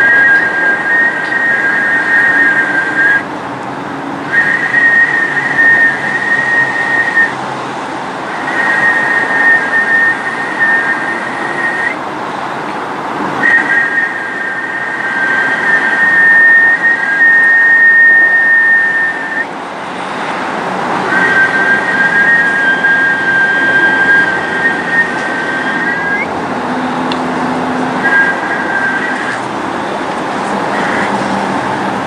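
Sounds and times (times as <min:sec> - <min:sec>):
high-pitched tones: 0:00.0 - 0:03.3, 0:08.3 - 0:12.0, 0:13.4 - 0:32.0.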